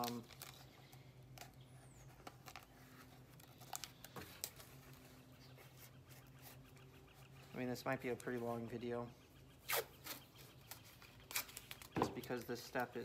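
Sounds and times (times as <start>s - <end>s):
tape clicks and rustles: 0.0s - 5.0s, 10.0s - 13.0s.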